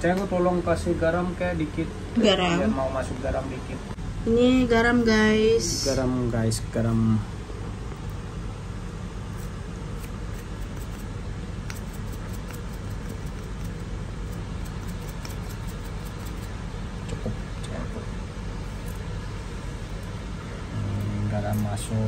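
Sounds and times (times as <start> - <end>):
low background hum: 0.0 - 22.0.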